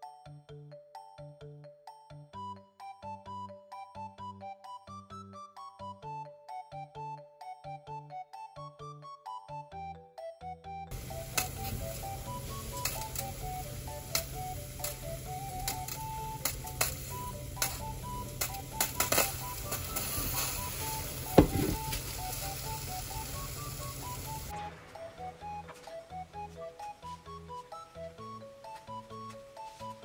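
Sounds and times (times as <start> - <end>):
steady low rush of stove: 10.9 - 24.5.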